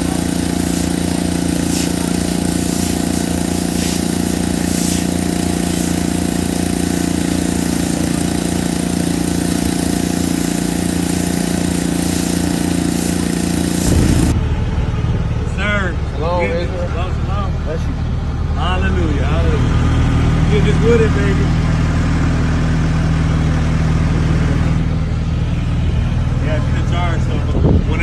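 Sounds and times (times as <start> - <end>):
spray hissing on concrete: 0.0 - 14.4
pressure washer motor drone: 0.0 - 28.0.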